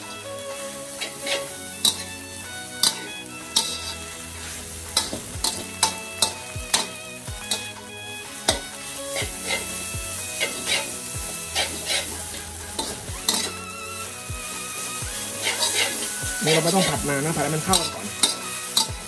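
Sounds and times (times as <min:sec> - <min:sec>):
frying sizzle: 0:00.0 - 0:19.0
metal spatula clacking on wok: 0:02.8 - 0:03.9, 0:04.9 - 0:07.7, 0:12.7 - 0:13.6, 0:17.6 - 0:19.0.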